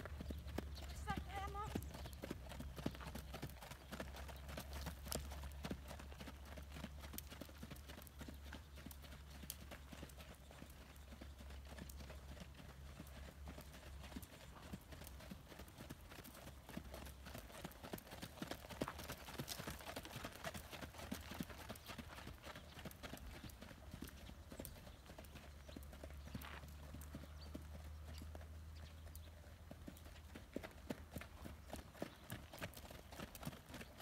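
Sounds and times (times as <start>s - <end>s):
hoofbeats on sand: 0.0s - 29.3s.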